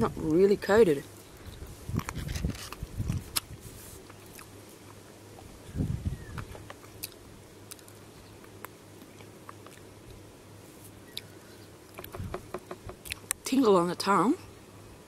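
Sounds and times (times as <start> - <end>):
person chewing crunchy chips: 1.4 - 5.4, 6.4 - 10.2.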